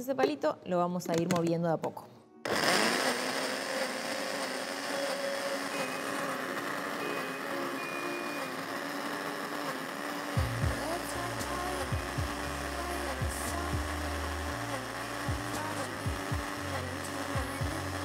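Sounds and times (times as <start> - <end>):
blender running: 2.4 - 18.0.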